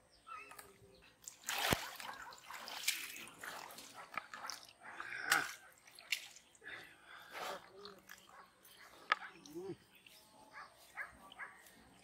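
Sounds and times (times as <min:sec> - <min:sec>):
pond water splashing and dripping: 0:00.4 - 0:08.4.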